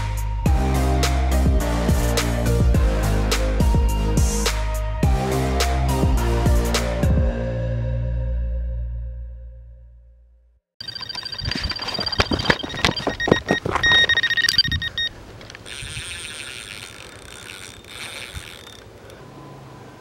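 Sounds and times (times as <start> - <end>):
bite alarm beeping: 10.8 - 15.2
faint steady whirring: 13.8 - 20.0.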